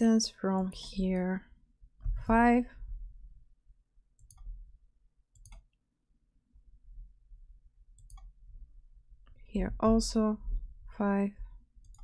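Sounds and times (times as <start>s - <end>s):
computer mouse clicks: 4.2s - 4.6s, 5.3s - 5.8s, 8.0s - 8.3s, 11.8s - 12.0s.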